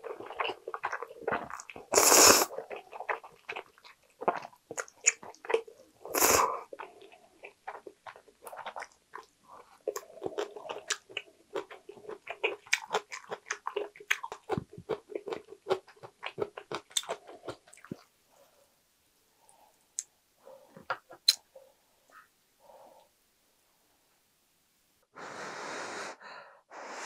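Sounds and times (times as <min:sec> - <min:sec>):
wet chewing with mouth clicks: 0:00.0 - 0:18.1
loud noodle slurps: 0:01.9 - 0:02.6.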